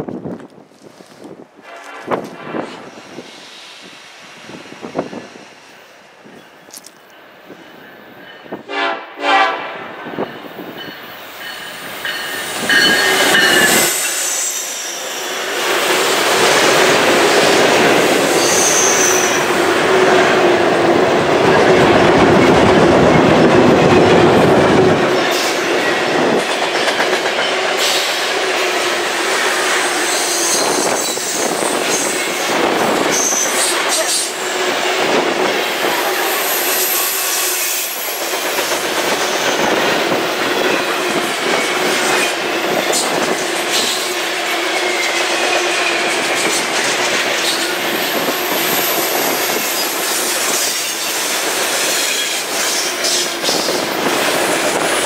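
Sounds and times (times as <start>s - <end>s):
train horn blasts: 1.6s - 2.8s, 8.6s - 10.2s
locomotive rumbling past: 1.6s - 55.0s
high wheel squeals: 11.2s - 15.4s, 18.2s - 19.6s, 29.8s - 32.4s, 33.0s - 34.6s.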